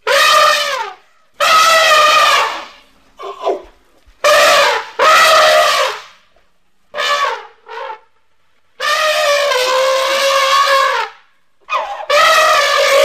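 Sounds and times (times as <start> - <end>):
elephant trumpeting: 0.0 - 6.0, 8.8 - 13.0.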